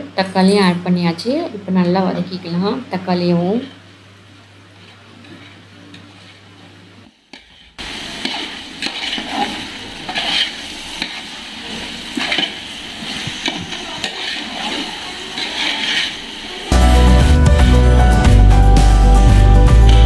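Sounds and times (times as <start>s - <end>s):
food frying in oil: 7.4s - 16.7s
metal spatula scraping pot: 8.2s - 11.2s, 11.8s - 16.3s.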